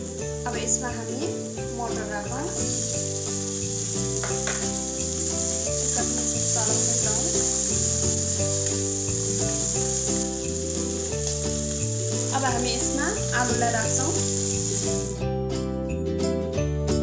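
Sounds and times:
vegetables sizzling in oil: 0.0s - 15.2s.

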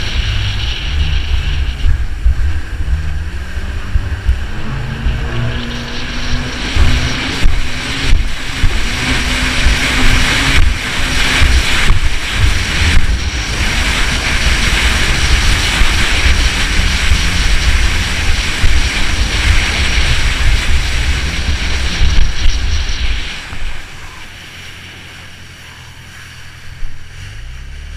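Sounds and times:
wind buffeting microphone: 0.0s - 27.5s
jet ski engine drone: 0.0s - 27.9s
water rushing and spraying: 0.0s - 27.9s.

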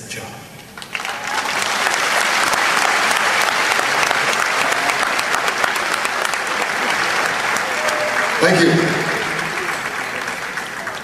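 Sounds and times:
audience applauding: 0.8s - 11.0s.

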